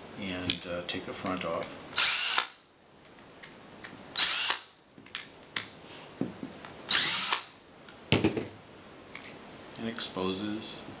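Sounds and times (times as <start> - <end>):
cordless drill spinning: 2.0 - 2.5, 4.2 - 4.6, 6.9 - 7.5
knocks: 8.1 - 8.5.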